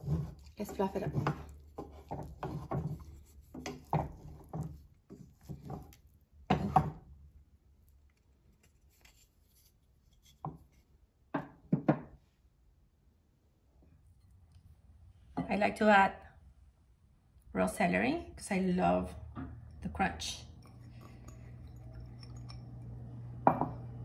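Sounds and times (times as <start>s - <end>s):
spatula scraping rice in pan: 0.0s - 6.0s.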